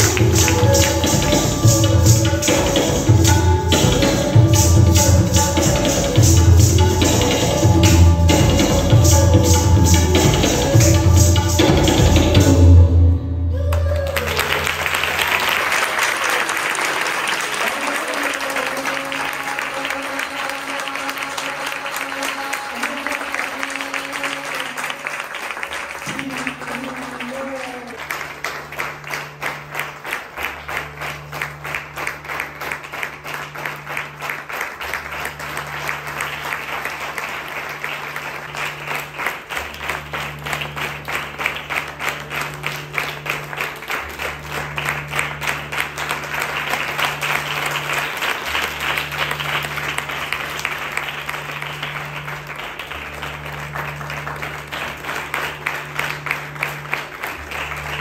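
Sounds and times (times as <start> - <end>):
audience applause: 13.7 - 58.0.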